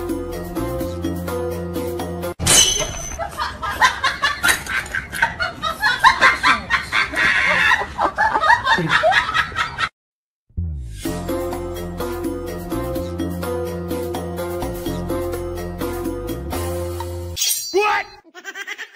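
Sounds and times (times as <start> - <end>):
choppy giggling laughter: 3.2 - 9.9, 18.2 - 18.9.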